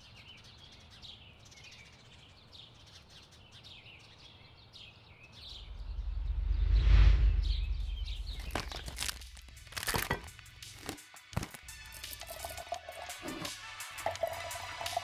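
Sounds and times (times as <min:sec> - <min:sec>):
small birds chirping: 0:00.0 - 0:06.6, 0:07.4 - 0:11.4
faint outdoor ambience: 0:00.0 - 0:13.0
deep whoosh: 0:05.5 - 0:08.5.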